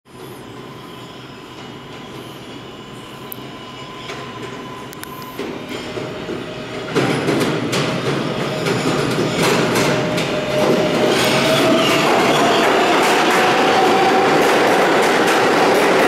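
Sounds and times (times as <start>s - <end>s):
subway train rumbling in tunnel: 0.1s - 16.0s.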